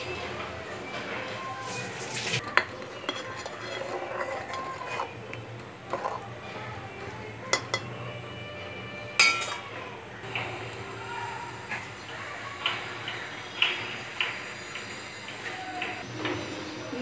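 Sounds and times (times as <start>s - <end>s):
metal spoon stirring in pot: 1.8s - 8.0s, 9.2s - 9.7s
spoon knocking on pot: 7.5s - 7.9s, 9.2s - 9.6s.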